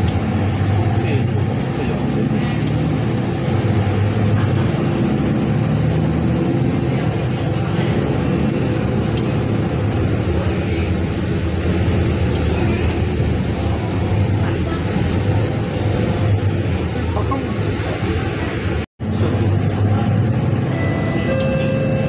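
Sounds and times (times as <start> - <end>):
bus engine and road noise: 0.0 - 22.0.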